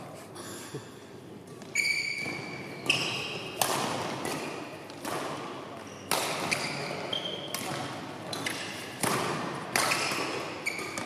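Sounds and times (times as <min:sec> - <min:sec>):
shoes squeaking on court: 0:01.5 - 0:03.6, 0:05.8 - 0:08.9, 0:09.8 - 0:11.0
racket hitting shuttlecock: 0:01.5 - 0:11.0.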